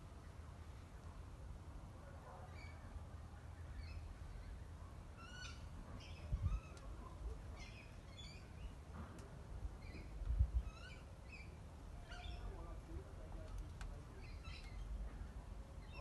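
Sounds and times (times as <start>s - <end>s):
low outdoor rumble: 0.0s - 16.0s
small birds chirping: 2.3s - 8.8s, 9.7s - 16.0s.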